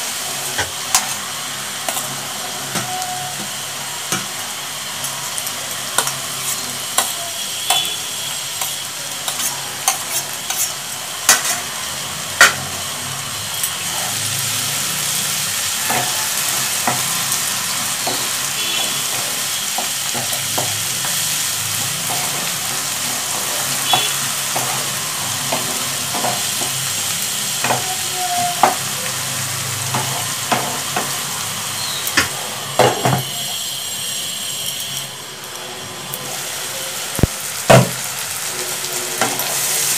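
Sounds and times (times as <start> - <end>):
vegetables sizzling in a wok: 0.0 - 39.9
spatula scraping a pan: 8.6 - 11.7.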